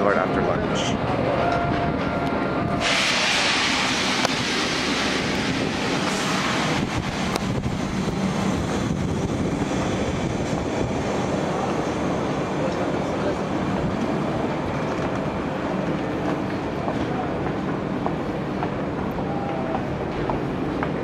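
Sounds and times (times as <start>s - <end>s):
train rushing hiss: 2.6s - 17.4s.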